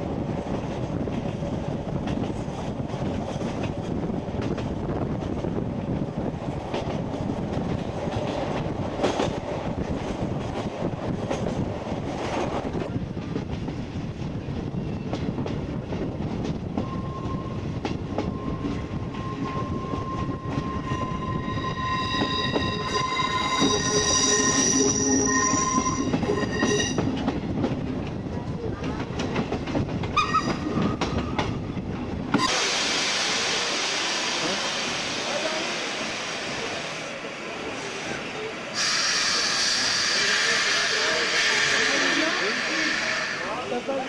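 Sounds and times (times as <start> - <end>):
train wheels rumbling on rails: 0.0 - 44.0
wheel flanges squealing: 16.8 - 27.2.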